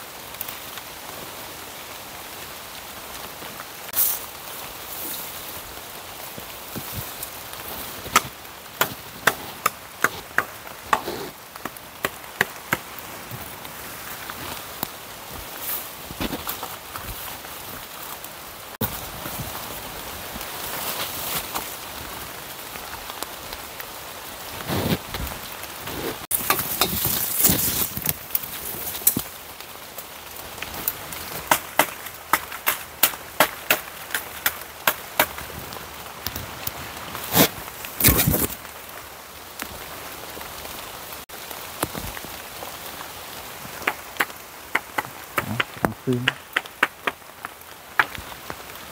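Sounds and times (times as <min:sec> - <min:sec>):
rain hissing: 0:00.0 - 0:48.9
wood being chopped: 0:08.1 - 0:12.9, 0:31.4 - 0:35.4, 0:43.8 - 0:48.2.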